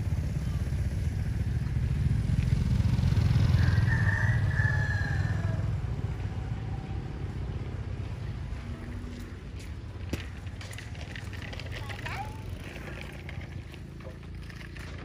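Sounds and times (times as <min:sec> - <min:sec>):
small motorcycle engine running: 0:00.0 - 0:07.4, 0:10.2 - 0:15.0.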